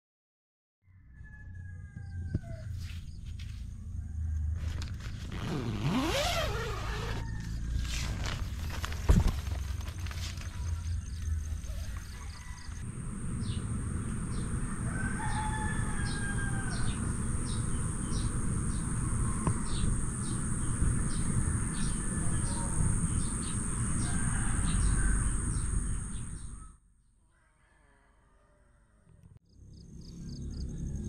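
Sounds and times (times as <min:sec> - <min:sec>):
rooster crowing: 0:00.8 - 0:02.9, 0:03.8 - 0:05.0, 0:06.4 - 0:08.1, 0:11.8 - 0:26.7, 0:27.3 - 0:29.1
birds chirping: 0:10.4 - 0:26.8
low rumble: 0:12.8 - 0:26.6
high insect buzz: 0:12.9 - 0:26.6.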